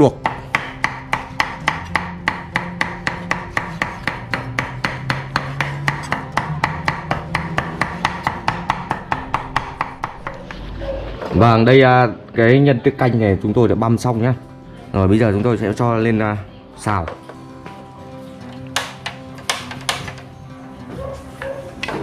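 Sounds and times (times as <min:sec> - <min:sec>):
cleaver chopping on board: 0:00.2 - 0:10.4, 0:18.8 - 0:20.2.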